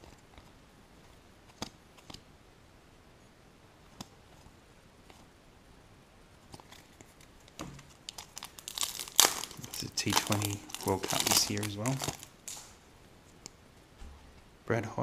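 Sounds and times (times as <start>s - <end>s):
wrapper tearing and crinkling: 8.0s - 12.8s.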